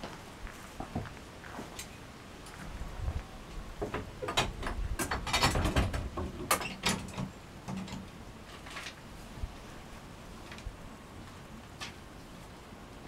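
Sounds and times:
metal lock rattling and clicking: 3.9 - 8.1.

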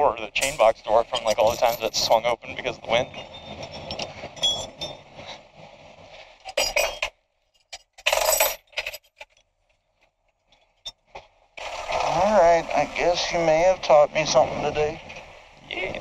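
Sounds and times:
metallic clinking and rattling: 0.4 - 2.2, 3.1 - 5.1, 6.4 - 9.4.

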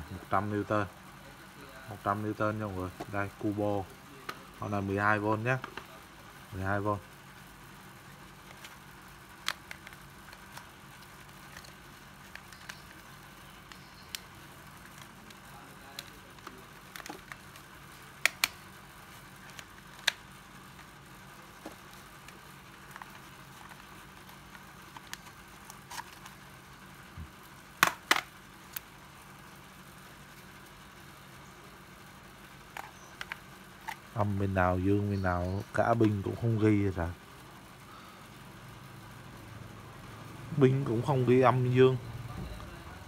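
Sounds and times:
sharp plastic clacks: 9.4 - 13.0, 13.6 - 18.7, 27.8 - 28.9, 32.7 - 34.1.

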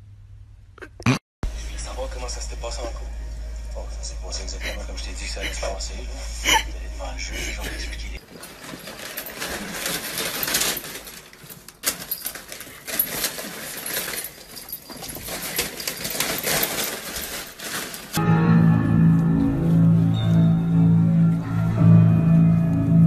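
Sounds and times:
music: 1.4 - 8.2, 18.2 - 23.0
wrapping paper crackling: 7.6 - 18.2.

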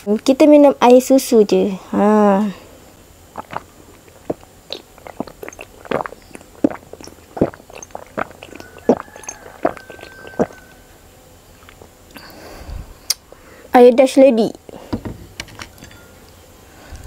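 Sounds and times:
person gulping swallows: 3.3 - 10.7.

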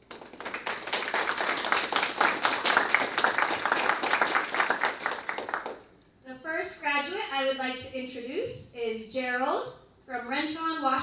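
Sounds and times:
audience applauding: 0.0 - 5.9.

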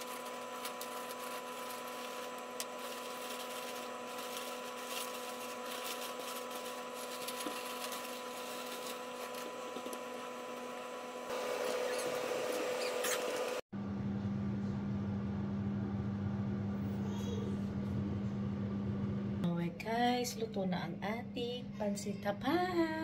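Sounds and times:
plastic bag crinkling: 0.0 - 10.2
steady hum: 0.0 - 16.9.

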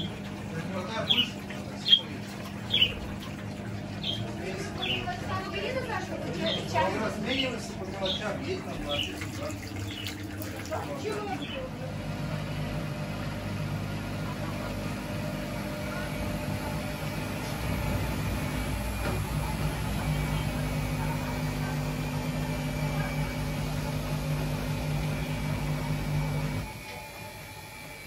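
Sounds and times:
washing machine drum motor hum: 0.0 - 28.0.

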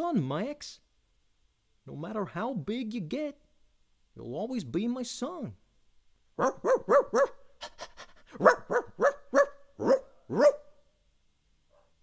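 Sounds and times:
man imitating dog barks: 6.4 - 7.4, 8.3 - 10.7.

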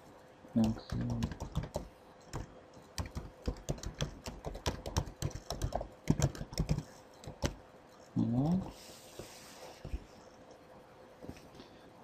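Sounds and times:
typing on a keyboard: 0.6 - 7.6.

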